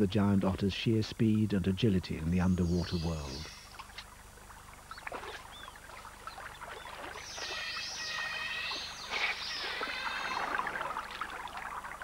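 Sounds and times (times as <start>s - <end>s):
water splashing: 3.6s - 12.0s
otters squealing: 7.5s - 10.6s.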